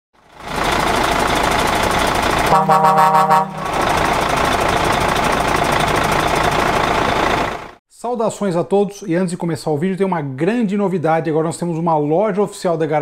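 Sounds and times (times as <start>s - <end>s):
heavy truck engine running: 0.2s - 7.8s
air horn blast: 2.5s - 3.9s.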